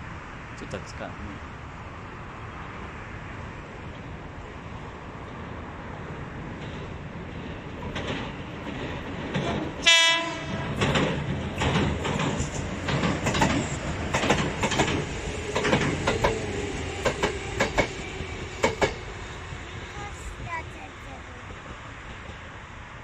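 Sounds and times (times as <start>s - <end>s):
train running rumble: 0.0s - 23.0s
wheels clattering over rail joints: 3.8s - 19.2s
train horn blast: 9.8s - 10.8s.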